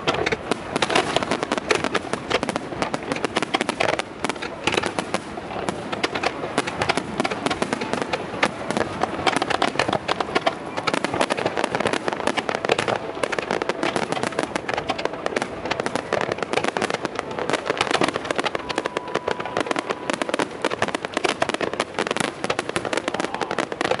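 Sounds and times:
fireworks bursting and crackling: 0.0 - 24.0.

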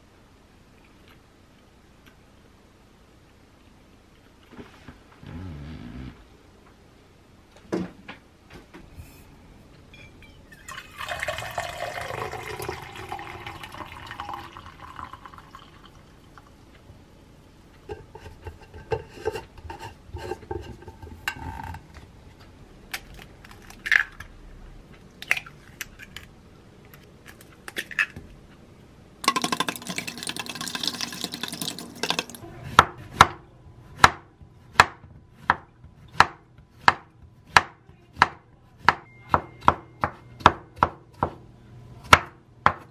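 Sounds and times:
liquid pouring: 10.6 - 16.6, 29.2 - 32.4.

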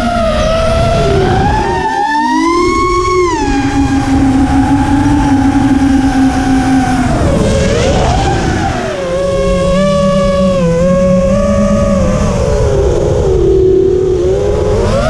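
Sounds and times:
rushing noise: 0.0 - 14.7
quadcopter motors whining: 0.0 - 15.0.

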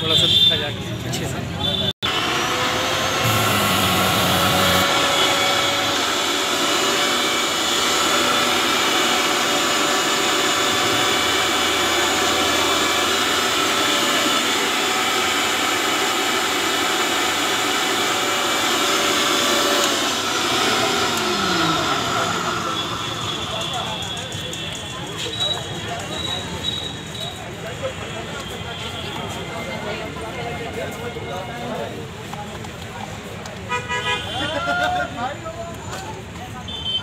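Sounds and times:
electric blender motor: 2.0 - 24.4.

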